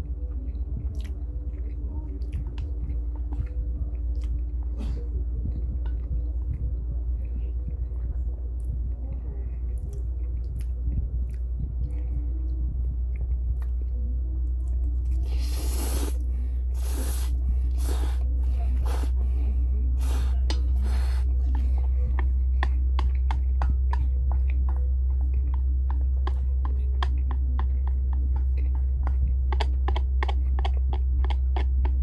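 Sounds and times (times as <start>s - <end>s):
low hum: 0.0s - 32.0s
wet chewing: 0.5s - 4.7s, 20.0s - 32.0s
person slurping noodles: 15.2s - 16.2s, 16.8s - 18.2s
chopsticks clicking on metal bowl: 25.5s - 32.0s.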